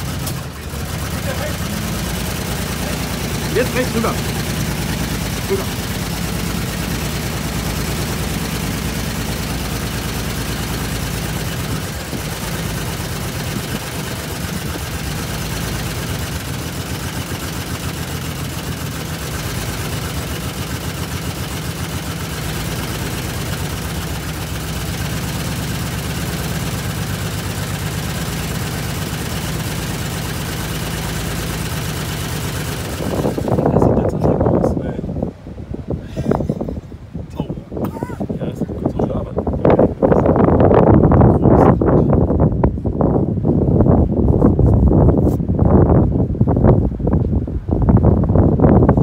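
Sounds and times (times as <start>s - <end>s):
engine idling: 0.0s - 35.0s.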